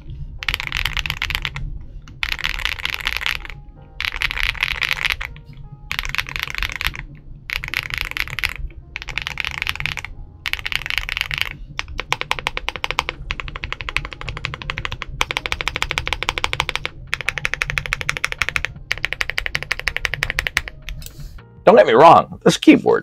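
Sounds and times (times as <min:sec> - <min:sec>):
typing on mechanical keyboard: 0:00.0 - 0:21.0.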